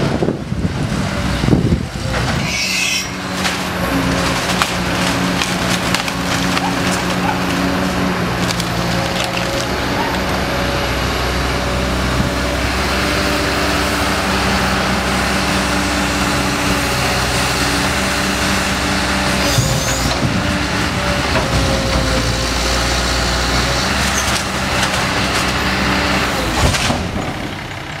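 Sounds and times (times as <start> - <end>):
excavator diesel engine running: 0.0 - 2.5, 3.1 - 28.0.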